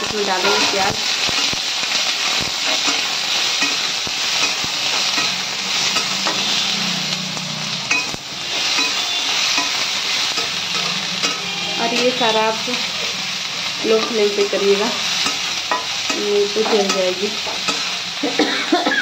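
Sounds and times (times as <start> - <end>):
onions sizzling in hot oil: 0.0 - 19.0
metal spatula scraping pan: 0.3 - 1.6, 2.6 - 7.2, 7.9 - 13.2.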